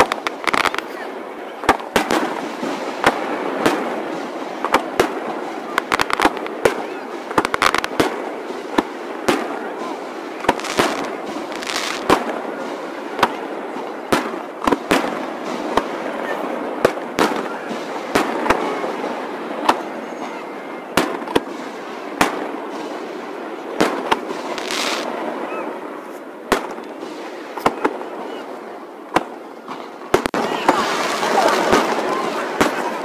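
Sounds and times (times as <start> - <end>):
fireworks bangs: 0.0 - 33.0.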